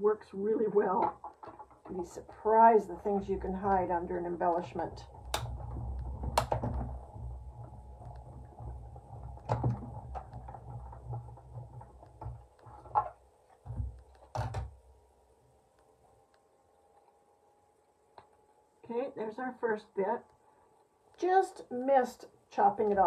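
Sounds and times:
machine rollers rumbling: 0:00.0 - 0:14.6.

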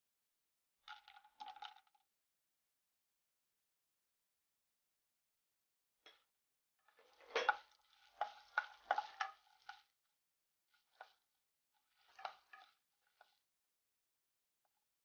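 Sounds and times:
light sizzling: 0:07.0 - 0:09.9, 0:11.9 - 0:13.3
spatula scraping pan: 0:07.0 - 0:09.9, 0:10.8 - 0:11.2, 0:11.8 - 0:13.4.

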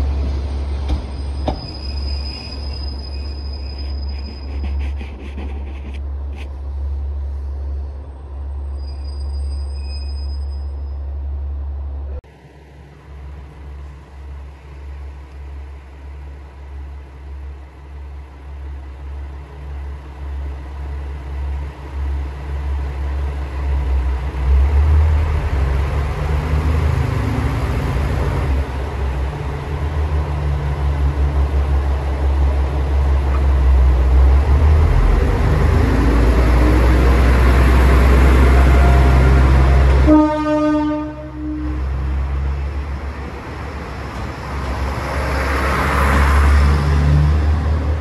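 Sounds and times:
diesel railcar engines: 0:00.0 - 0:48.0
train horn blast: 0:38.4 - 0:42.0.

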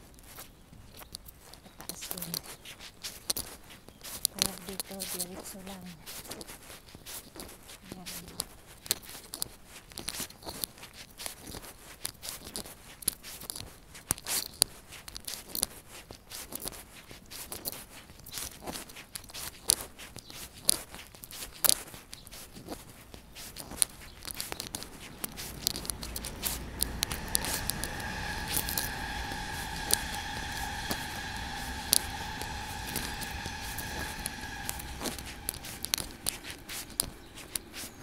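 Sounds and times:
low rumble: 0:23.2 - 0:38.0
high-pitched hum: 0:23.6 - 0:38.0.

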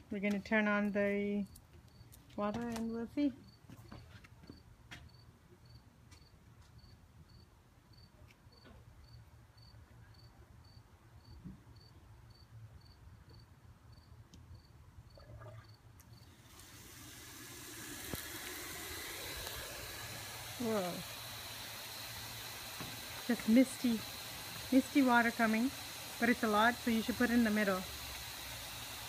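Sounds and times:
cricket chirping: 0:05.1 - 0:16.3
lawn sprinkler water spray hiss: 0:16.0 - 0:29.0.

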